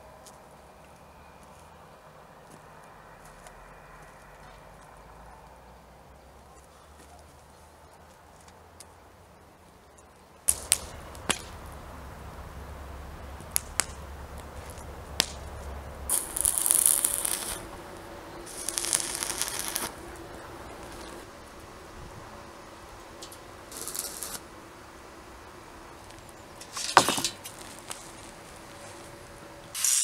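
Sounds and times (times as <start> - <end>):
arc welding crackling and sizzling: 10.4 - 30.0.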